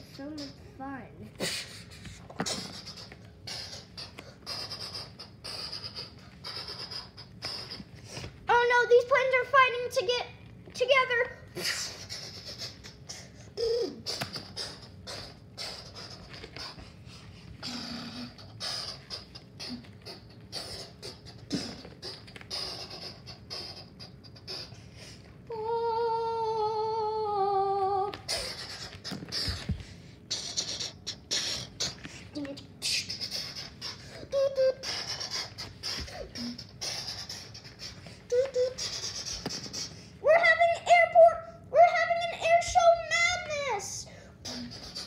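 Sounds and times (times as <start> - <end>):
child making mouth sound effects: 0.0 - 1.8, 2.4 - 7.9, 11.6 - 16.8, 17.6 - 24.8, 25.5 - 45.0
wavering hum falling in pitch: 11.4 - 45.0.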